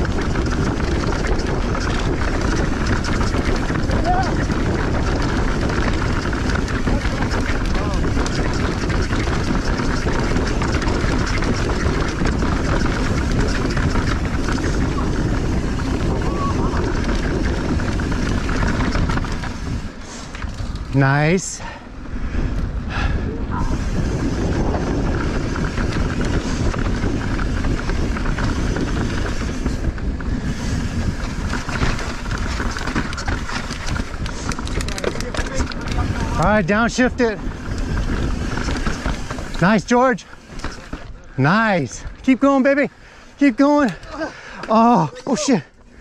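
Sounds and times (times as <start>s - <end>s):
bike rattling over bumps: 0.0s - 46.0s
bike tyres crunching on dirt: 0.0s - 46.0s
wind on microphone: 0.0s - 46.0s
chain and frame rattling: 31.0s - 42.6s.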